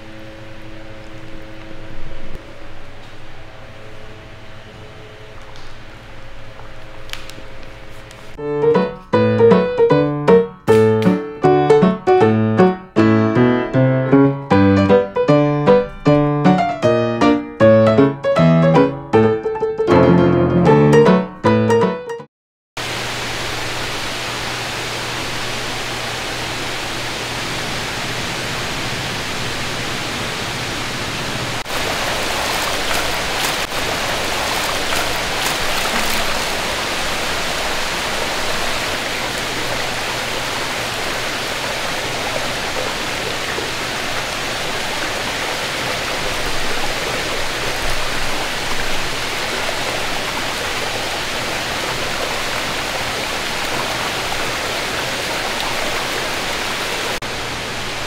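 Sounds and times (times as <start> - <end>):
low hum: 0.0 - 8.4
running water: 0.0 - 12.0, 22.8 - 58.0
piano music: 8.4 - 22.3.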